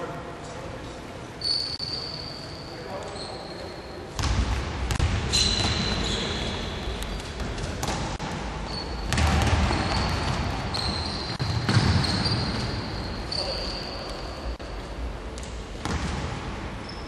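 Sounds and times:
basketball bouncing on hardwood: 0:09.1 - 0:12.2.

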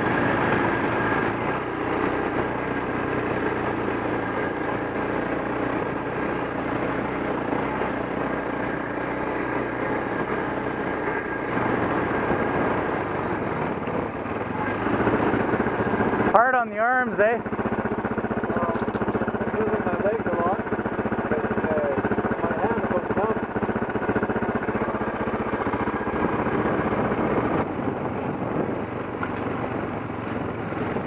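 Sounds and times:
motorcycle engine running: 0:00.0 - 0:31.0.

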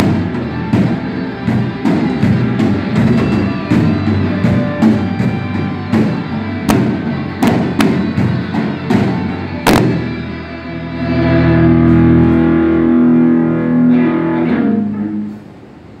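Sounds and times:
sharp drum hits: 0:00.0 - 0:10.2
live rock band: 0:00.0 - 0:15.3
distorted guitar chord ringing: 0:00.0 - 0:16.0.

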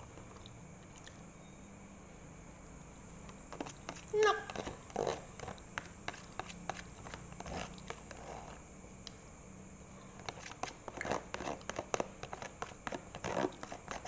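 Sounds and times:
spoon scraping plastic tub: 0:03.5 - 0:08.6, 0:10.2 - 0:14.0.

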